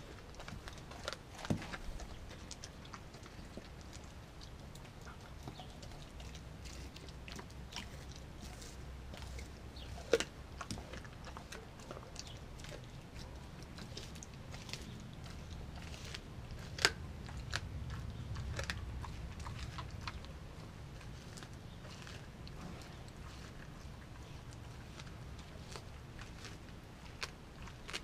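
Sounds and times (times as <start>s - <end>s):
dog chewing bone: 0.0s - 28.0s.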